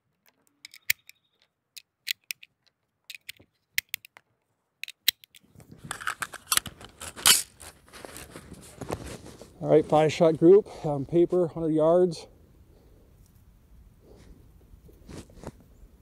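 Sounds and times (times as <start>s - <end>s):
cartridges clicking into magazine: 0.2s - 4.2s, 4.8s - 6.7s
handling rustle: 5.4s - 10.8s, 14.1s - 15.8s.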